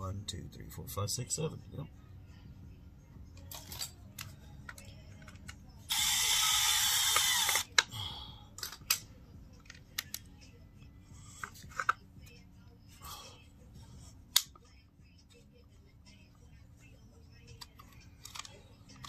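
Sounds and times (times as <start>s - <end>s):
tools and parts clicking: 3.4s - 7.9s, 8.6s - 10.3s, 17.5s - 19.0s
screwdriver grinding: 5.9s - 7.7s.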